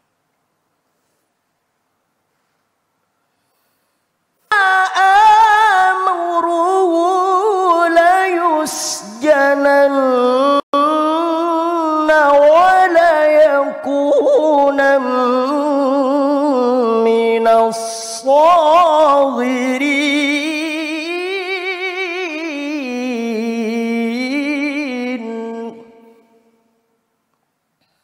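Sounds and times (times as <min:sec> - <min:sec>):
man reciting melodically: 0:04.4 - 0:26.2.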